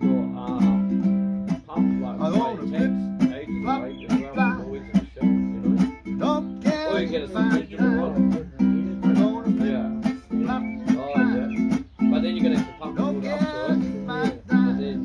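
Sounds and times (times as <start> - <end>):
people's voices: 0.0 - 15.0
ukulele strumming: 0.0 - 15.0.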